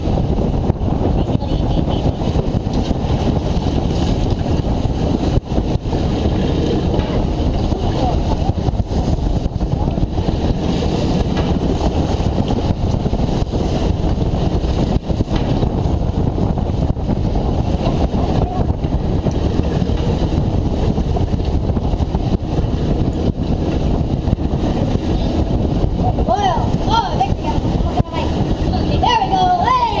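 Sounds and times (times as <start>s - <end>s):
boat engine rumble: 0.0s - 30.0s
wind buffeting microphone: 0.0s - 30.0s.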